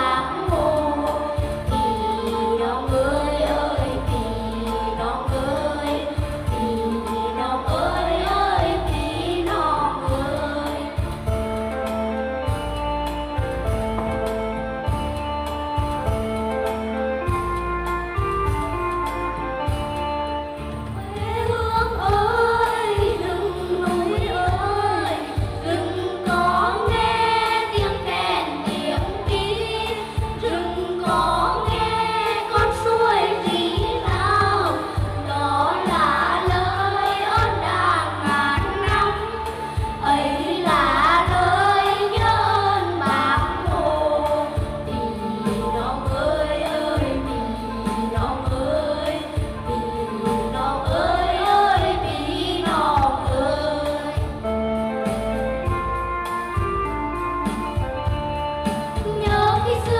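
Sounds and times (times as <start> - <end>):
group singing folk song: 0.0 - 11.6, 21.3 - 55.2, 59.0 - 59.9
instrumental backing track with beat: 0.0 - 59.9.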